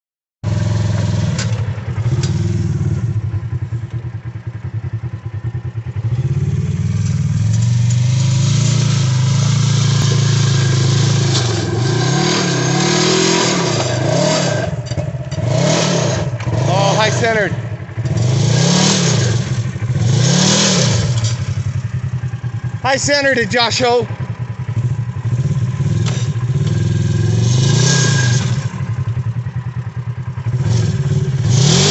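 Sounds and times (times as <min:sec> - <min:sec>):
engine revving hard: 0:06.0 - 0:21.8, 0:24.8 - 0:28.9, 0:30.5 - 0:31.9
tires spinning in loose dirt: 0:06.2 - 0:23.4, 0:24.8 - 0:29.0, 0:30.5 - 0:31.9.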